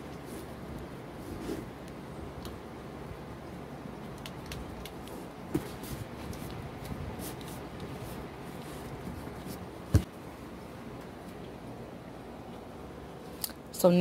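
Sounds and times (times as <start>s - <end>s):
rustling and crackling tape: 4.0s - 10.1s.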